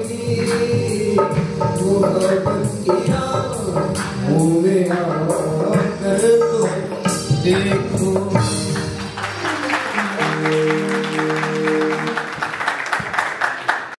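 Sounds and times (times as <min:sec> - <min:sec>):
qawwali music with drum: 0:00.0 - 0:12.6
audience clapping: 0:08.8 - 0:14.0
held musical chord: 0:09.0 - 0:12.8.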